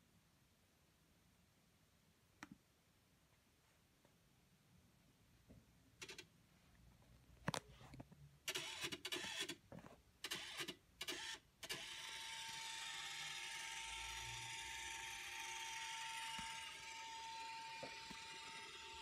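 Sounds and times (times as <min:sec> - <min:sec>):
scanner motor whirring: 0:11.2 - 0:19.0.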